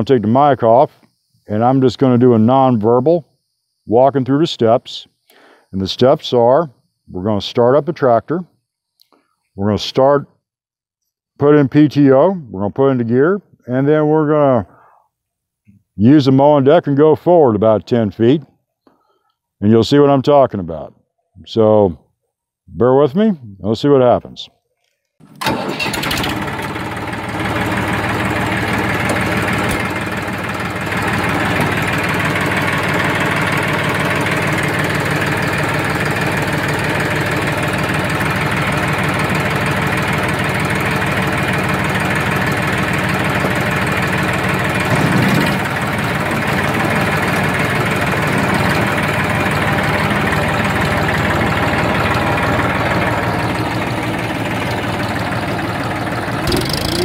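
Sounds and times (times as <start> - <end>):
tractor diesel engine running: 25.2 - 57.0.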